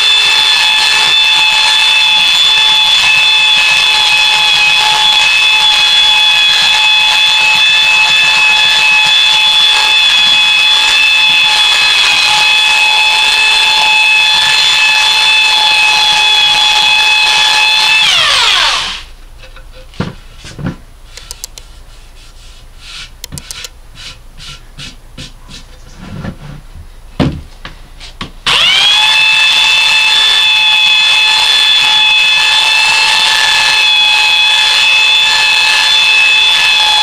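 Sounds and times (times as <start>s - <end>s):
belt sander whining: 0.0s - 19.2s, 28.4s - 37.0s
hand rubbing over wood: 21.1s - 26.7s.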